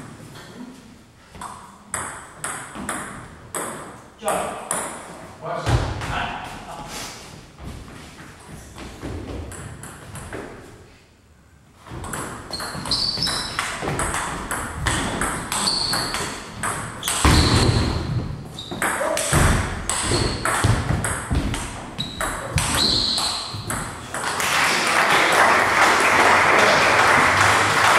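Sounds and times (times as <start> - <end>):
shoes squeaking on wooden floor: 11.9 - 23.8.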